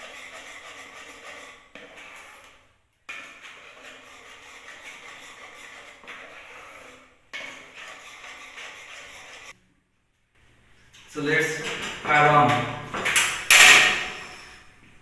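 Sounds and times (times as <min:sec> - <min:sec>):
whisk beating batter in pot: 0:00.0 - 0:09.5.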